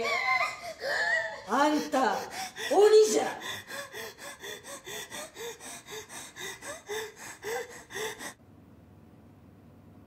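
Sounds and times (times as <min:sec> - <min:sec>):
woman hyperventilating: 0:00.0 - 0:08.4.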